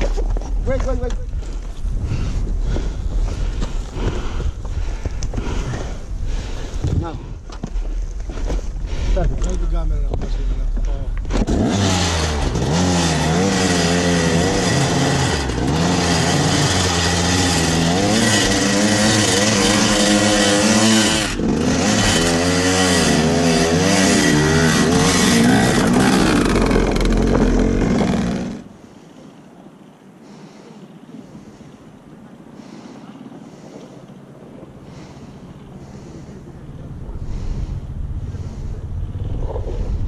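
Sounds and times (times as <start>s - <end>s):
dirt bike engine revving: 11.3s - 28.7s.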